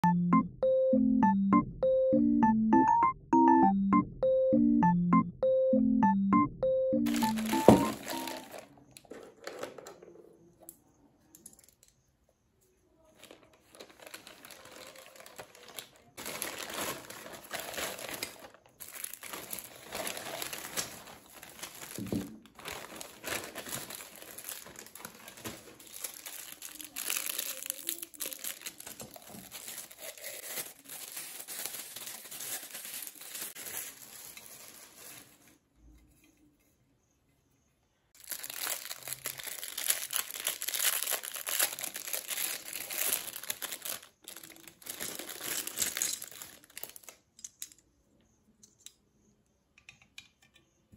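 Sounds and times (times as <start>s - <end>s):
plastic packaging crinkling: 7.1s - 9.8s, 13.1s - 35.6s, 38.2s - 47.3s.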